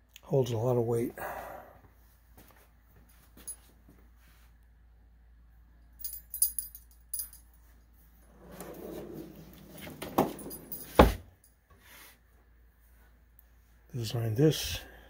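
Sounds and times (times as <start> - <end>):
drawer rolling on ball-bearing slides: 8.3 - 11.1
drawer closing thump: 9.8 - 11.3.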